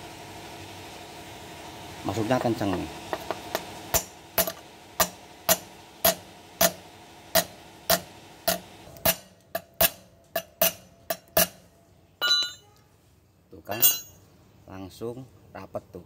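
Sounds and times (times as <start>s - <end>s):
hammer tapping on metal: 7.4s - 11.6s, 12.2s - 12.7s.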